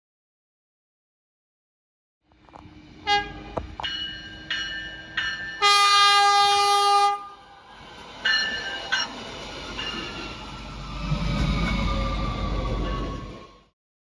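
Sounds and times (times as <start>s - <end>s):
light-rail car rumble: 2.2s - 13.8s
train horn blasts: 3.0s - 3.6s, 5.6s - 7.4s.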